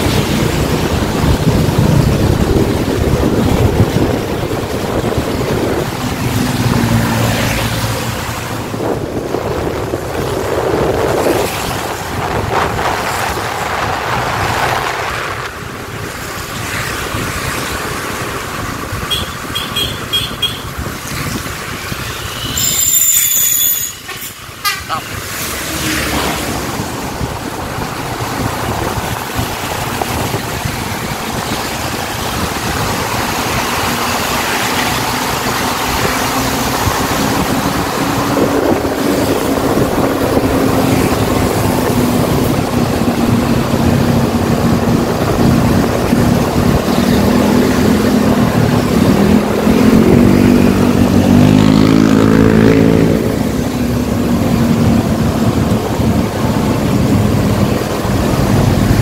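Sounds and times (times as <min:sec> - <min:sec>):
diesel bus engine running: 0:00.0 - 0:11.2, 0:26.5 - 0:51.7, 0:53.2 - 0:59.0
tyre and road hiss: 0:07.1 - 0:51.7.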